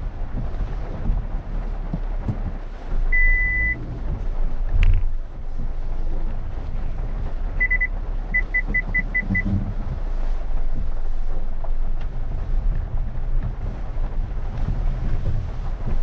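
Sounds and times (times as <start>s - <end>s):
car engine running: 0.0s - 16.0s
parking sensor beeping: 3.1s - 3.9s, 7.6s - 9.6s.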